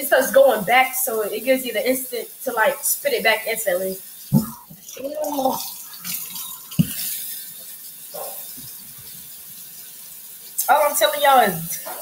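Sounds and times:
faucet running into metal sink: 0.5 - 11.8
sharp knock: 4.3 - 4.6.

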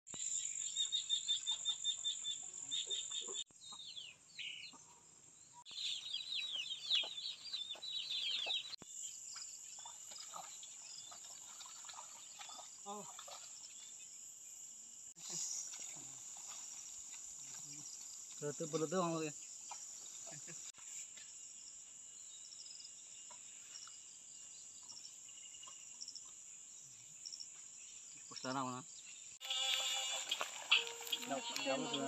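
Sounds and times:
high insect drone: 29.4 - 32.0.

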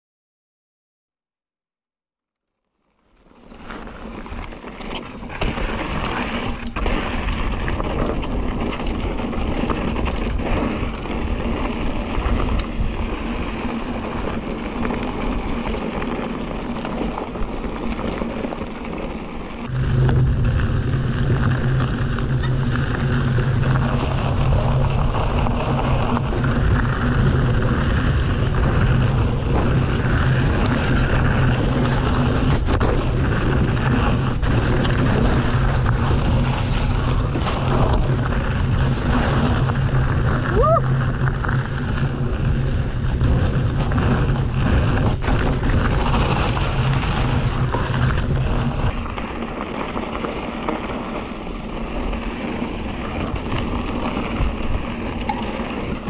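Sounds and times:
bike tyres rolling on dirt: 2.5 - 56.0
bike rattling over bumps: 3.0 - 56.0
wind noise on microphone: 3.5 - 56.0
steady low hum: 19.6 - 56.0.

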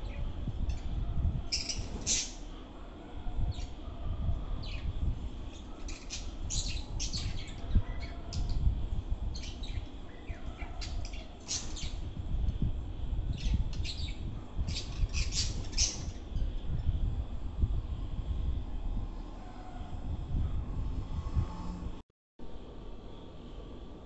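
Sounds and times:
low background rumble: 0.0 - 24.0
budgerigars chirping and squawking: 1.5 - 2.4, 13.4 - 16.2.

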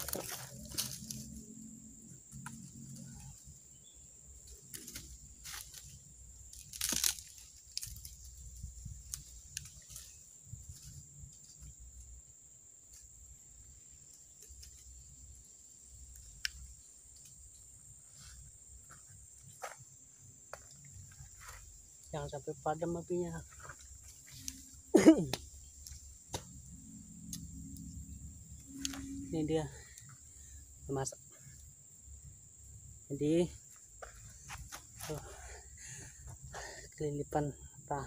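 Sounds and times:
sharp cracks of twigs: 0.0 - 1.4, 4.4 - 11.7, 16.1 - 17.4, 23.7 - 26.6
twigs crunching and snapping: 0.0 - 1.5, 4.4 - 12.0, 14.0 - 15.0, 16.0 - 17.6, 23.5 - 28.0, 28.6 - 29.2.

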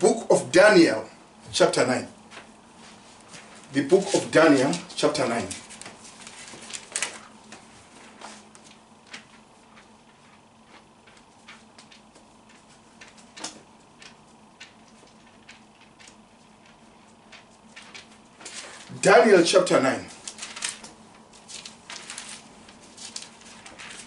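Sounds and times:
paper pages flicking and rustling: 2.3 - 24.0.

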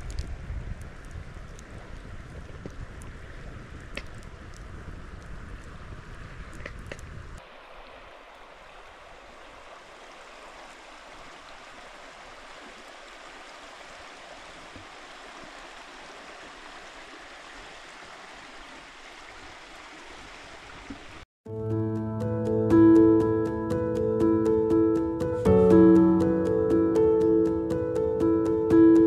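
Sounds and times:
wind rumble on microphone: 0.0 - 7.4
wood fire crackling: 0.0 - 7.4
stream water running: 0.0 - 21.2.

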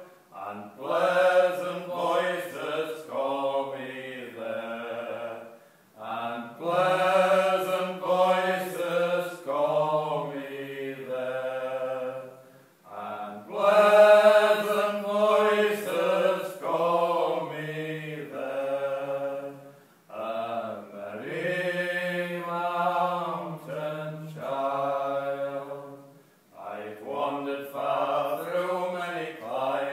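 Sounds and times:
men singing unaccompanied: 0.0 - 29.9.

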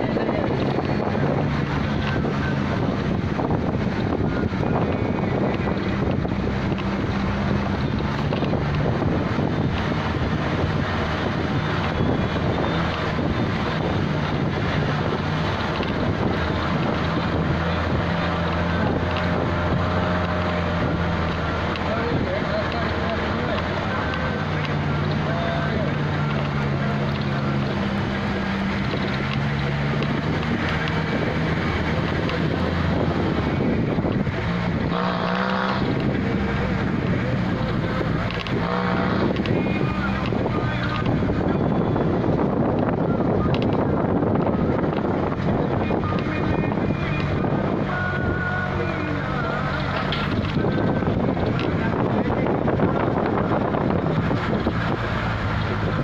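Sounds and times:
car engine hum: 0.0 - 56.0
road noise: 0.0 - 56.0
wind on microphone: 0.0 - 56.0.

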